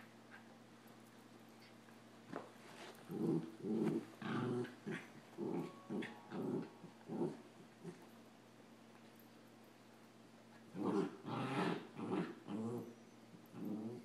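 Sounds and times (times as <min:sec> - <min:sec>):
puppies growling: 0:03.1 - 0:08.1, 0:10.7 - 0:14.0.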